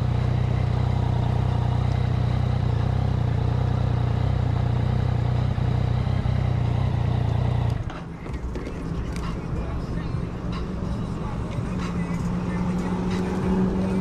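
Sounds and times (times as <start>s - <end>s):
motorcycle engine idling: 0.0s - 10.1s.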